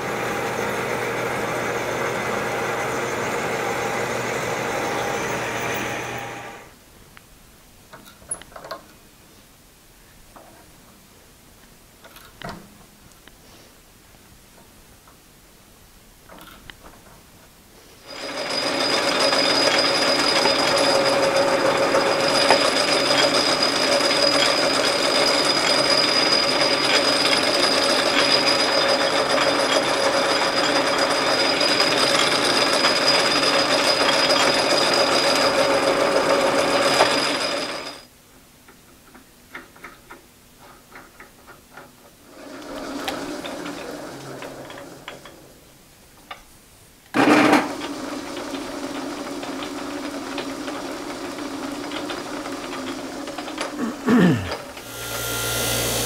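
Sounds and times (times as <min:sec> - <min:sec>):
metal lathe whirring and whining: 0:00.0 - 0:06.7, 0:18.1 - 0:38.1, 0:54.8 - 0:56.0.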